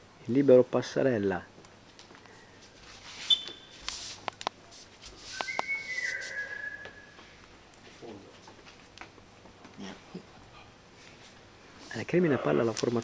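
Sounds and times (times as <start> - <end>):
high whistle: 3.2 - 3.7, 5.2 - 7.2.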